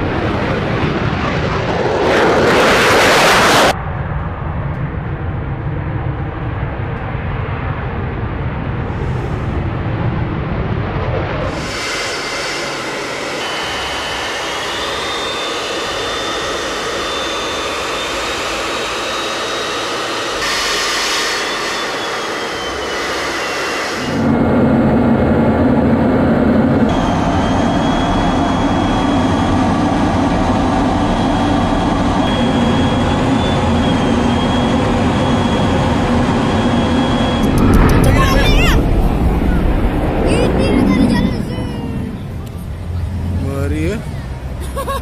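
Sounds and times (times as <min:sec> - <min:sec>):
jet engine rushing noise: 0:00.0 - 0:45.0
thin high whine: 0:11.5 - 0:24.5, 0:26.7 - 0:43.5.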